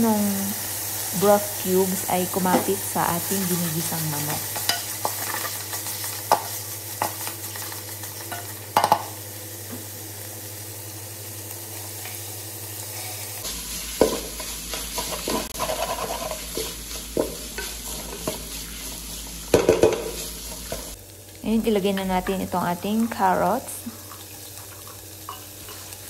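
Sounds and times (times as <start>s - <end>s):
food sizzling in oil: 0.0s - 26.0s
spatula scraping a metal pot: 14.9s - 16.7s.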